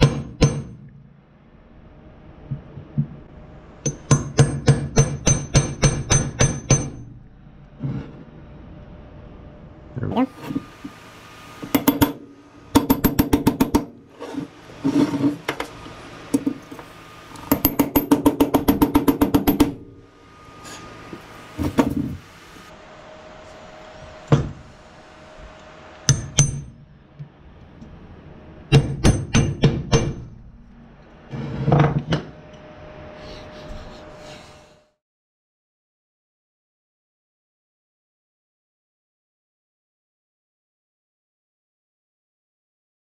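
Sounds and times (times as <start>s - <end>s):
hammer tapping metal: 0.0s - 0.9s, 3.8s - 7.0s, 11.7s - 14.0s, 17.5s - 19.9s, 26.1s - 26.8s, 28.7s - 30.3s.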